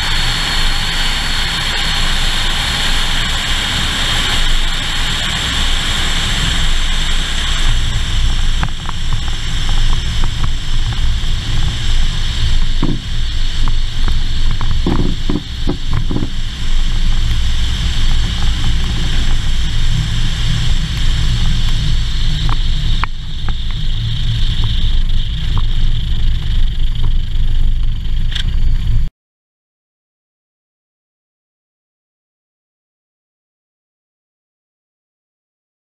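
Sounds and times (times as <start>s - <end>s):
plane engine idling: 0.0s - 29.1s
wheels knocking over bumps: 12.6s - 16.4s.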